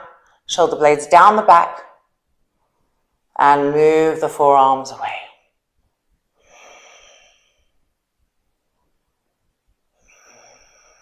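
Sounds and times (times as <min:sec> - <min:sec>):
woman breathing softly: 0:06.4 - 0:07.9, 0:10.0 - 0:11.0.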